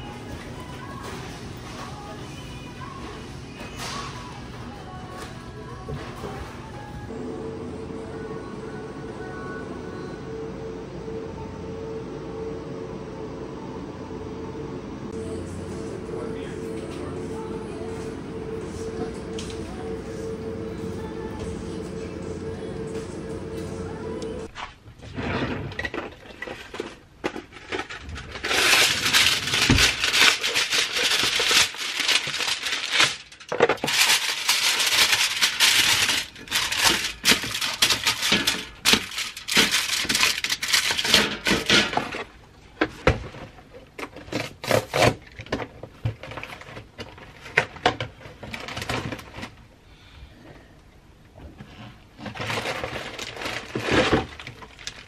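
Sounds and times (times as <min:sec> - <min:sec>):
aluminium foil crinkling: 0:26.2 - 0:42.3, 0:52.2 - 0:55.0.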